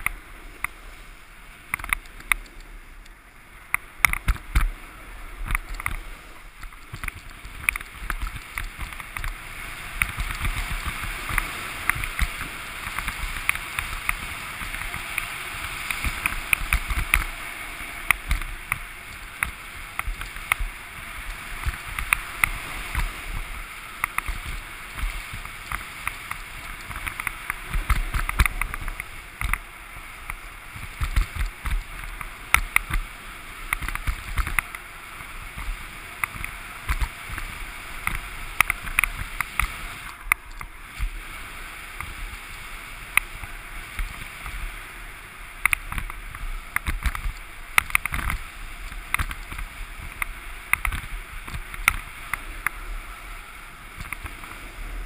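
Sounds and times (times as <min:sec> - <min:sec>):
low wind rumble: 0:00.0 - 0:55.0
snowboard scraping over snow: 0:00.0 - 0:55.0
sharp clicks: 0:01.7 - 0:04.7.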